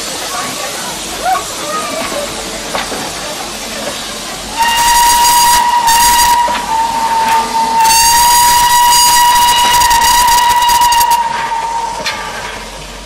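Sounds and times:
steam hissing: 0.0 - 13.0
steam locomotive whistle: 4.5 - 12.3.

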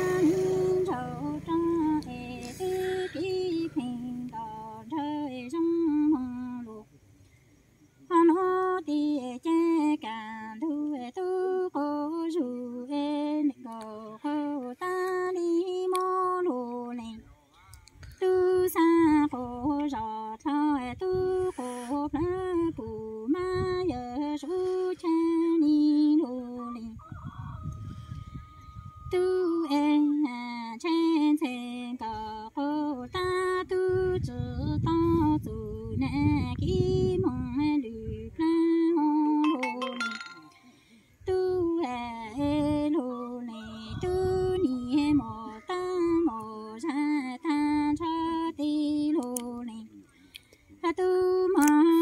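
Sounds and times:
woman singing unaccompanied: 0.0 - 7.0, 8.0 - 27.4, 28.2 - 50.1, 50.7 - 52.0.

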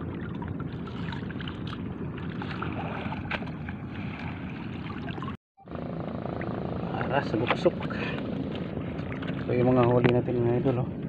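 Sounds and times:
seawater sloshing: 0.0 - 5.4, 6.0 - 11.0
small splashes: 0.0 - 5.4, 7.5 - 10.1
wind rumble on microphone: 0.0 - 11.0.

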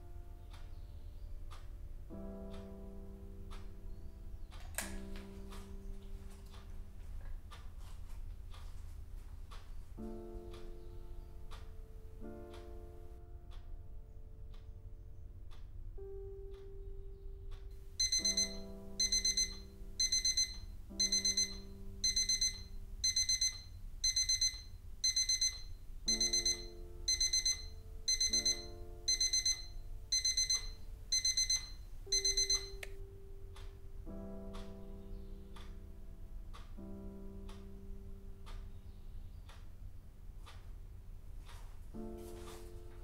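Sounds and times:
soft background music: 0.0 - 43.0
alarm clock beeping: 17.9 - 33.8.

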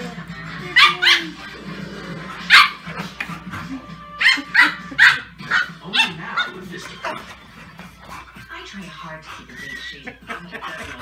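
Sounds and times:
dogs giving play barks: 0.7 - 1.6, 2.3 - 8.6.

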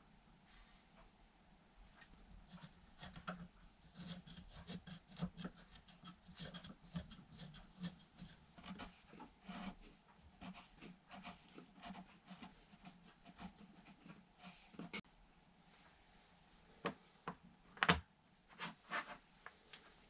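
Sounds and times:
hand file scraping wood: 2.4 - 15.0.

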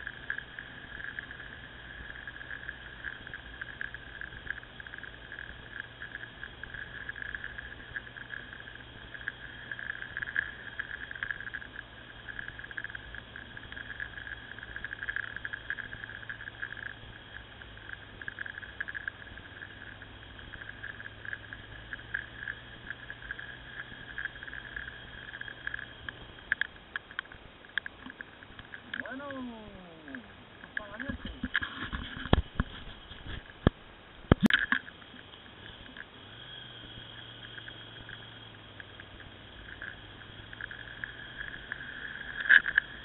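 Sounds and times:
motorcycle engine hum: 0.0 - 43.0
wind crackle: 0.0 - 43.0.

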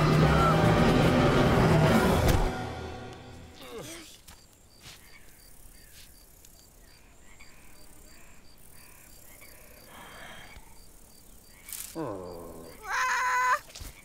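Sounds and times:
insect chirping: 3.6 - 14.0.

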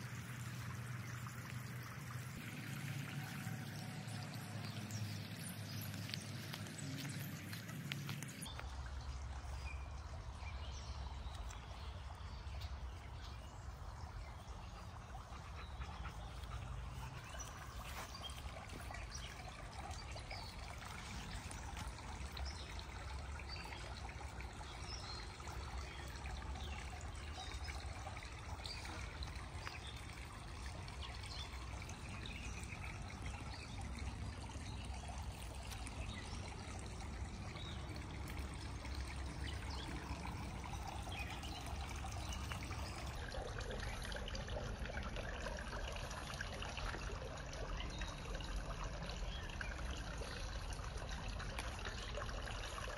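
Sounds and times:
water trickling and splashing: 0.0 - 52.9.

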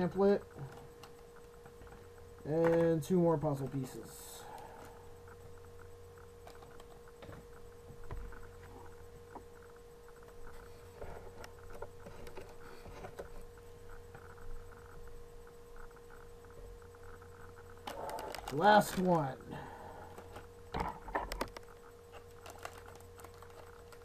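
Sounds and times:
steady hum: 0.0 - 24.0
packaging rustling: 17.9 - 19.1, 21.3 - 24.0.

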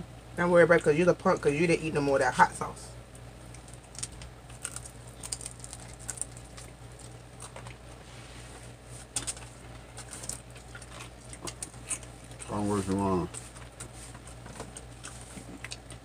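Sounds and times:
low steady hum: 0.0 - 16.0
chewing crisp fried chicken: 3.1 - 8.0, 9.0 - 16.0.

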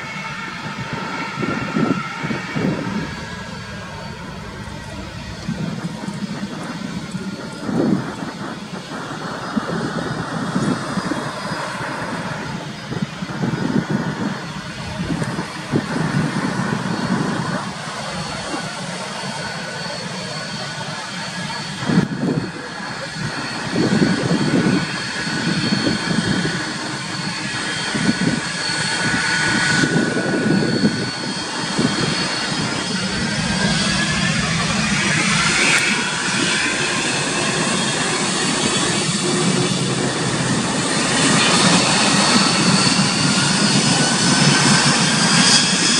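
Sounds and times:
jet engine whine: 0.0 - 45.9
low engine rumble: 0.8 - 11.0, 29.9 - 45.0.

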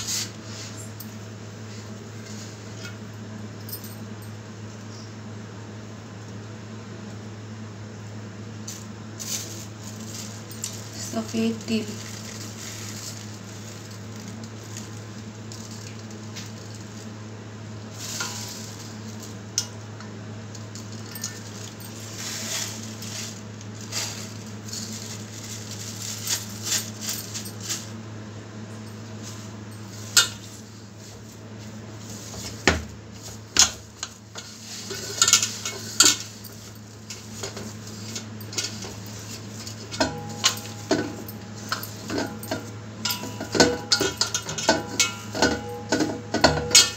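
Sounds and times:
low steady hum: 0.0 - 46.9
dough tapping and scraping on steel: 37.1 - 46.9.

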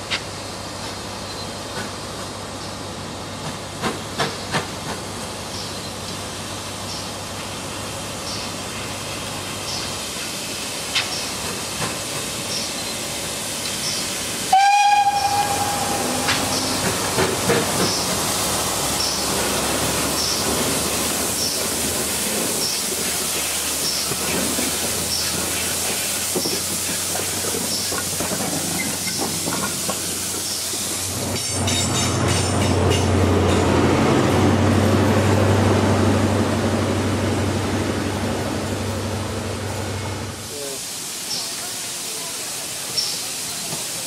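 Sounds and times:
steam hissing: 7.4 - 31.8, 40.2 - 44.0
steam locomotive whistle: 14.5 - 16.7.

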